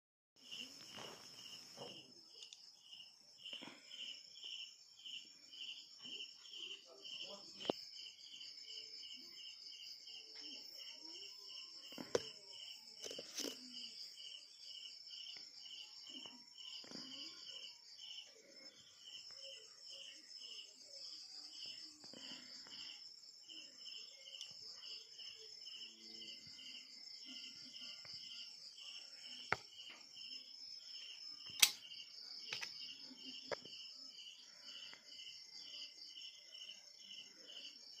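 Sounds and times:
crickets chirping: 0.4s - 38.0s.

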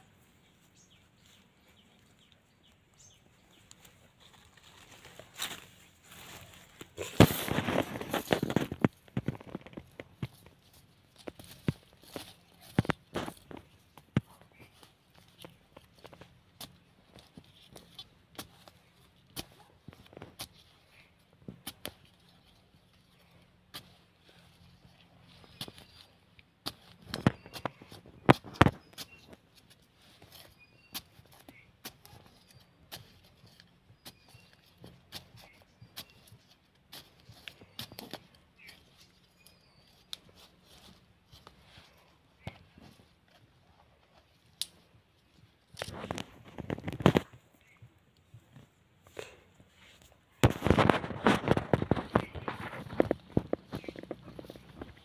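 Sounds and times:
trowel scraping in soil: 4.3s - 14.8s, 49.7s - 55.0s
trowel scraping stony soil: 4.4s - 44.8s, 49.7s - 55.0s.

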